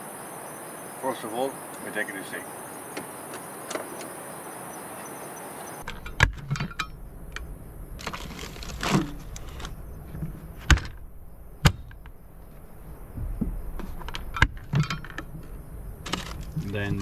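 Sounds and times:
crickets chirping: 0:00.0 - 0:17.0
plastic rustling: 0:08.0 - 0:11.0.

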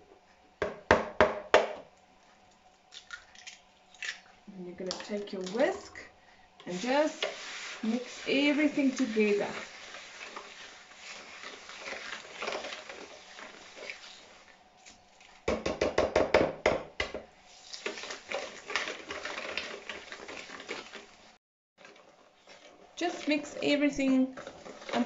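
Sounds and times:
whisk beating in plastic bowl: 0:06.7 - 0:14.2.

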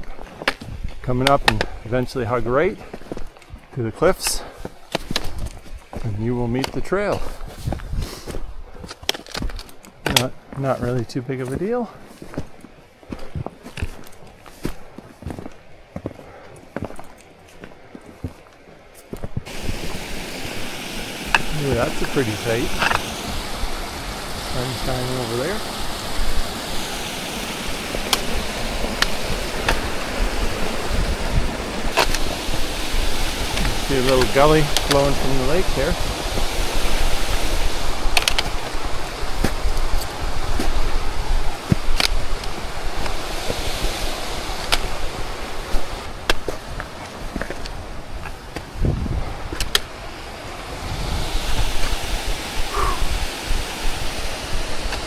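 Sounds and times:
wind gusting on microphone: 0:00.0 - 0:09.6, 0:19.2 - 0:55.0
mountain stream rushing: 0:19.4 - 0:55.0.

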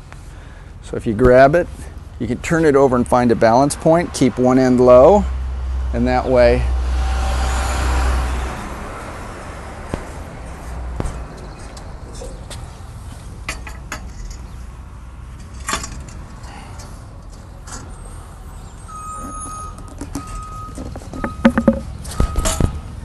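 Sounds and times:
metal track clicking and knocking: 0:19.7 - 0:22.7.

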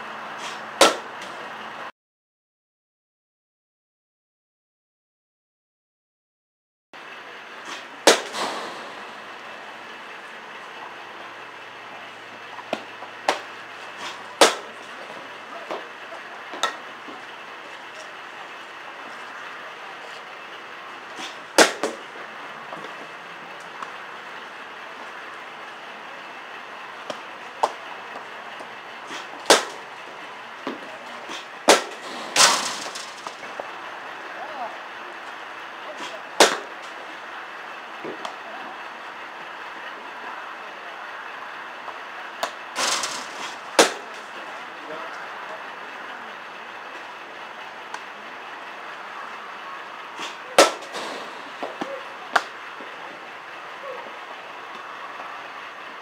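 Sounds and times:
bat cracking balls: 0:00.4 - 0:01.4, 0:07.7 - 0:09.3, 0:12.6 - 0:15.9, 0:21.1 - 0:22.2, 0:27.0 - 0:33.7, 0:36.0 - 0:37.0, 0:42.4 - 0:44.4, 0:50.2 - 0:52.6.

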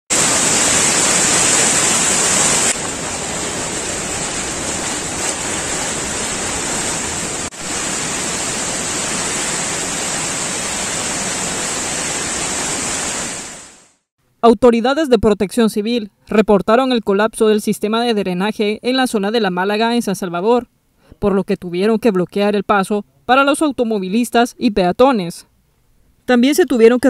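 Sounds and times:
fast-flowing river: 0:00.1 - 0:13.8.

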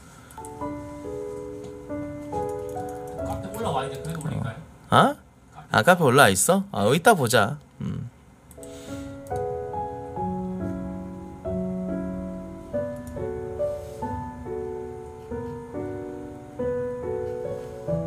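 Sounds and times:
slow piano melody: 0:00.0 - 0:04.8, 0:08.5 - 0:18.0.

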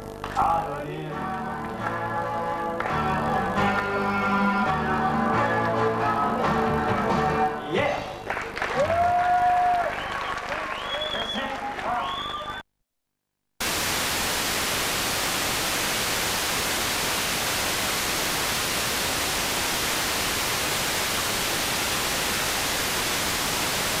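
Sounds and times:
loud static hiss: 0:00.0 - 0:08.5, 0:13.6 - 0:24.0.

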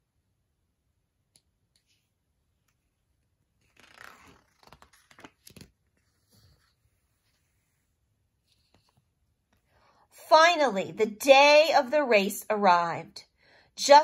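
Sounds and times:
paper page rustling: 0:03.6 - 0:07.6
page flicking: 0:03.7 - 0:05.8.

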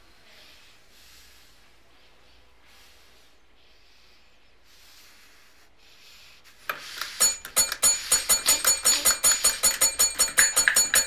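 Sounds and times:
faint breathy puffs: 0:00.0 - 0:07.3.

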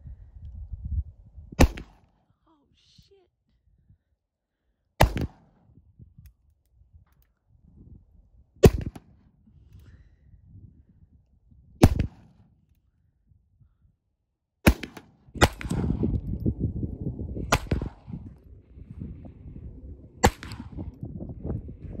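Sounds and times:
wind rumbling on microphone: 0:00.0 - 0:02.0, 0:05.1 - 0:14.0, 0:15.1 - 0:22.0
pistol shots: 0:14.7 - 0:15.9, 0:17.5 - 0:18.0, 0:20.2 - 0:20.8.

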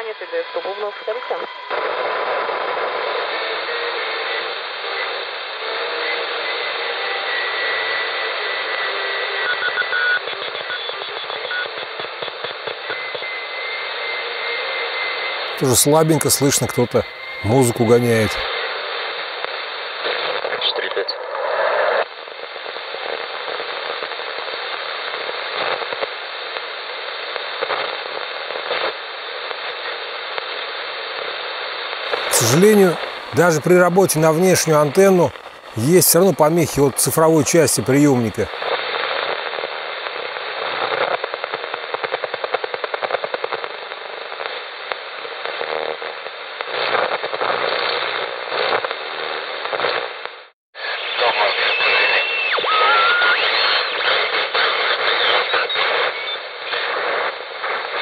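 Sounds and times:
radio station signals: 0:00.0 - 0:02.6, 0:15.6 - 0:18.4, 0:32.0 - 0:38.7, 0:50.8 - 0:58.0
radio static hiss: 0:00.0 - 0:58.0.

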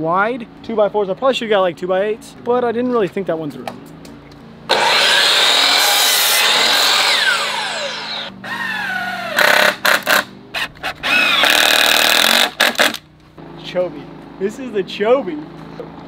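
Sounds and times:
cordless drill driving screws: 0:04.7 - 0:13.0
miter saw cutting lumber: 0:04.7 - 0:13.0.

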